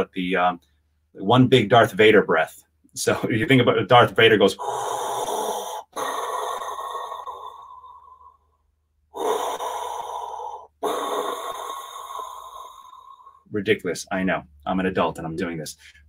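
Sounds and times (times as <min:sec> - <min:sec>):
man breathing noisily: 0:04.6 - 0:13.5.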